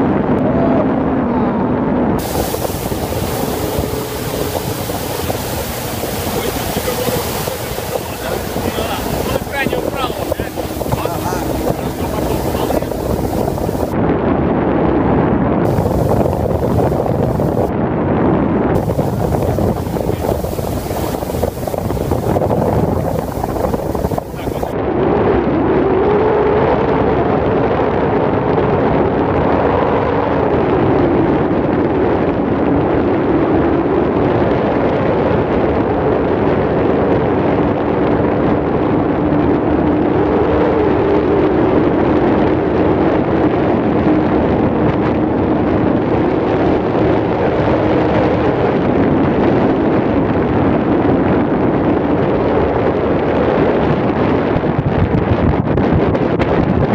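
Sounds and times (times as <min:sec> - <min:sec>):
wind rushing over microphone: 0:00.0 - 0:56.9
water rushing under hull: 0:00.1 - 0:14.2, 0:14.8 - 0:55.1
outboard engine running: 0:02.2 - 0:14.0, 0:15.7 - 0:17.7, 0:18.8 - 0:24.8.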